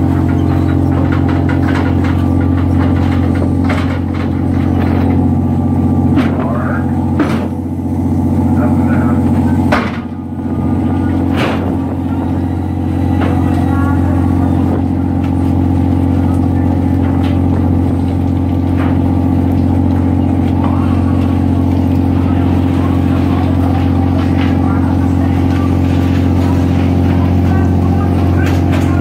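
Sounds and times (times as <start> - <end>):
boat engine droning: 0.0 - 29.0.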